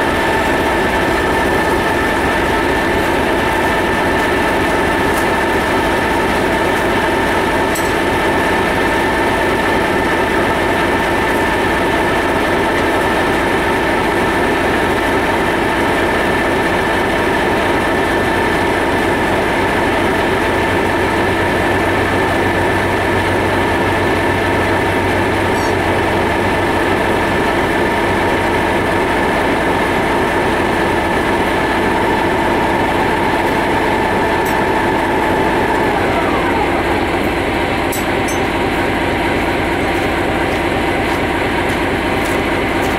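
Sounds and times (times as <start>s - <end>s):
diesel locomotive engine running: 0.0s - 42.9s
high whine: 18.9s - 42.9s.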